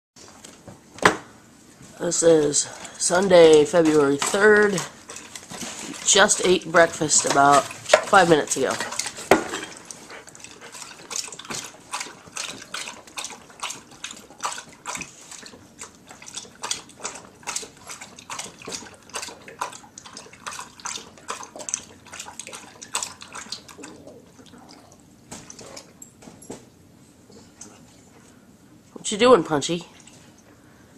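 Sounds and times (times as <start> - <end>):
dog lapping water from metal pail: 2.3 - 26.0.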